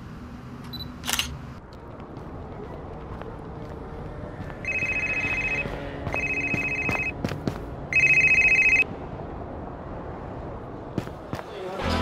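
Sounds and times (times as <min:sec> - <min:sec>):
mobile phone ringtone: 0:04.6 - 0:07.2, 0:07.9 - 0:08.9.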